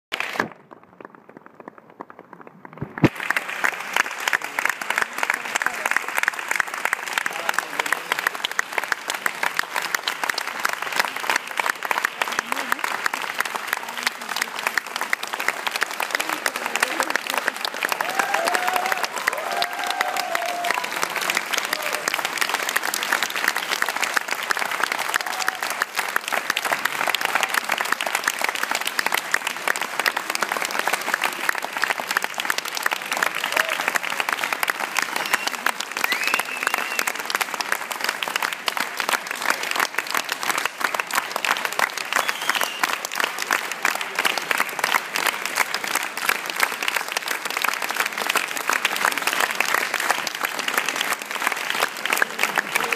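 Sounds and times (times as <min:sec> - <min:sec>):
audience applauding: 0:00.1 - 0:52.9.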